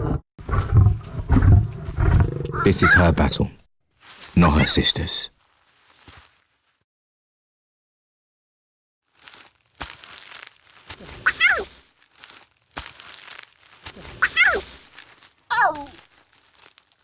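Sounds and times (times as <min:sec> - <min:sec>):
lion cubs calling: 0:02.2 - 0:03.4
rustling: 0:04.0 - 0:04.7, 0:05.3 - 0:06.8, 0:09.1 - 0:17.0.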